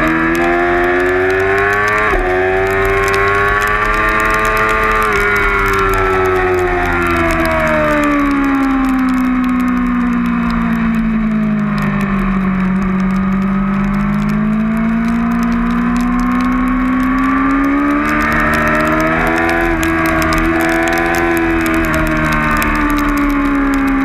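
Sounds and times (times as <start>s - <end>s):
motorcycle engine at high revs: 0.0s - 24.0s.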